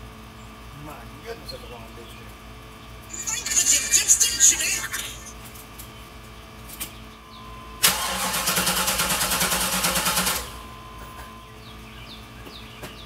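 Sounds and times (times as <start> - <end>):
starter cranking engine: 7.8 - 10.5.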